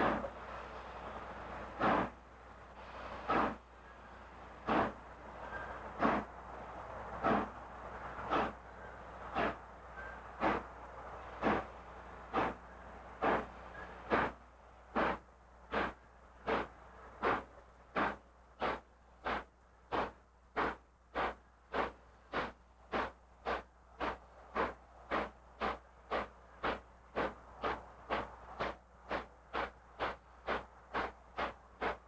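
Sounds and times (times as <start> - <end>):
steam locomotive exhaust chuffs: 0.0 - 32.0.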